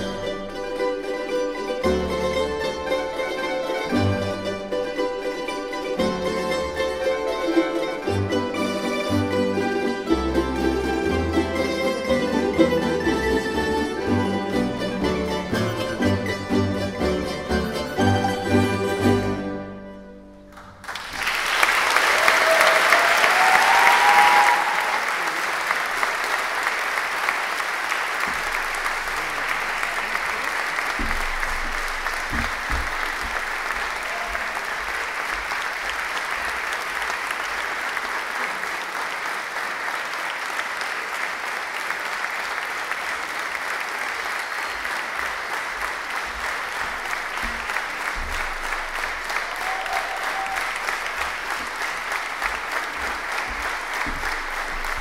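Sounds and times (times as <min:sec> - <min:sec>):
audience applauding: 0:20.5 - 0:55.0.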